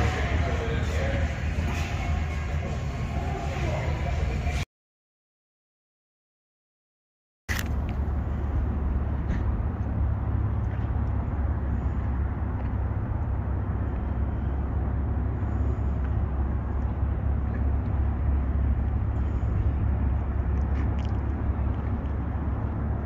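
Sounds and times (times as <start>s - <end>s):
low rumble: 7.5s - 23.0s.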